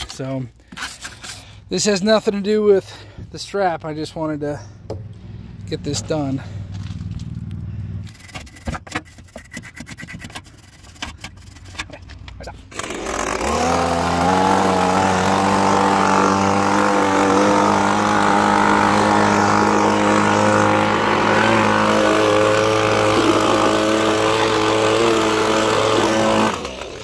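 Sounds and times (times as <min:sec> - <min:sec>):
leaf blower running: 0:12.7 - 0:27.0.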